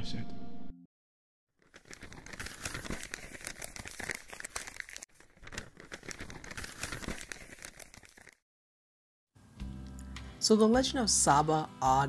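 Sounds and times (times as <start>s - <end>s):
paper crackling and crinkling: 1.6s - 8.4s.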